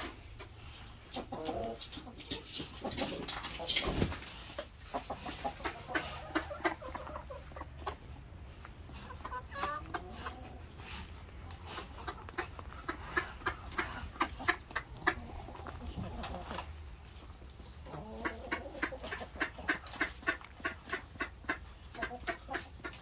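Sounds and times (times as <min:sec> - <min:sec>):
hens clucking: 0:00.0 - 0:23.0.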